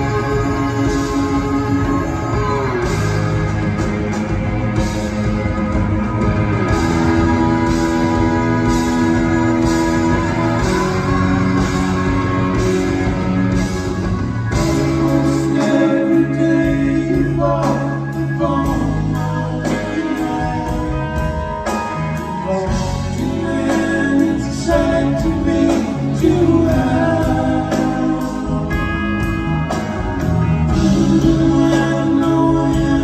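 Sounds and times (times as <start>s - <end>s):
live rock band playing: 0.0s - 33.0s
person singing: 14.5s - 29.0s, 30.7s - 33.0s.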